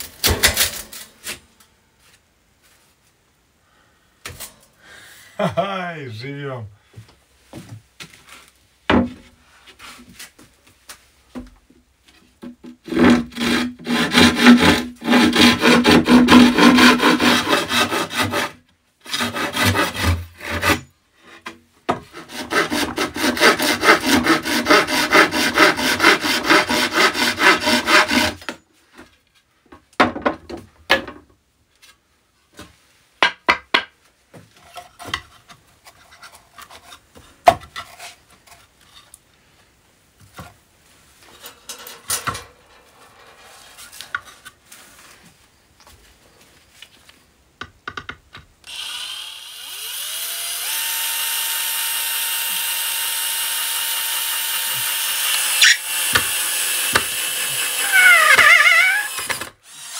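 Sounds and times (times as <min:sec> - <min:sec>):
hand saw cutting board: 0:12.6 - 0:28.6, 0:48.7 - 0:59.9
knocks and handling sounds: 0:28.4 - 0:48.6.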